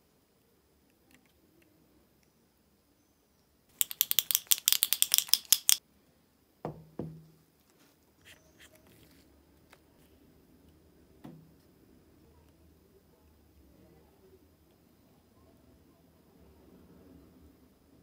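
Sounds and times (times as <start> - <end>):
paint pen ball rattling: 3.7 - 5.8.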